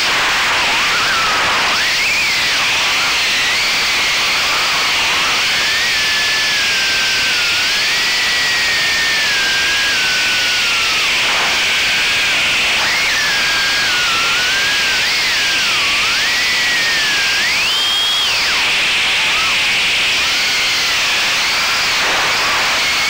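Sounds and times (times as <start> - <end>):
drone motors whining: 0.0 - 23.0
propeller and wind hiss: 10.3 - 23.0.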